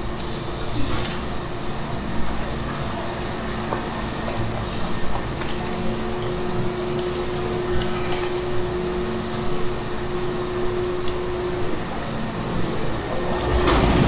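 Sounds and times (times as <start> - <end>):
industrial mixer drone: 5.6 - 14.0.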